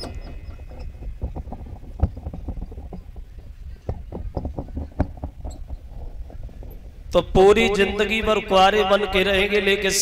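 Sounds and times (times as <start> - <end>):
soft thumps and knocks: 0.0 - 7.1.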